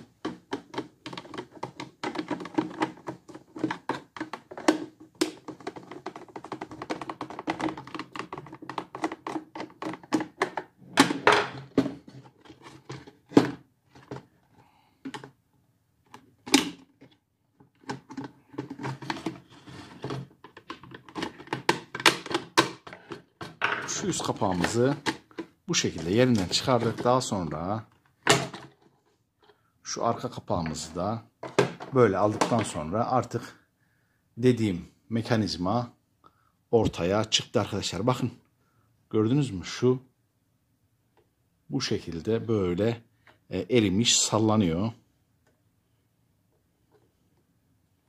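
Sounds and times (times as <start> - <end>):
plastic knocks: 0.2 - 12.1, 31.4 - 32.7.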